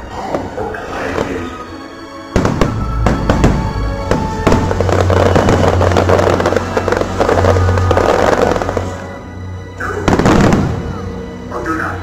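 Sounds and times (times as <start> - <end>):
music: 0.0 - 12.0
glitter crackling: 2.4 - 9.2.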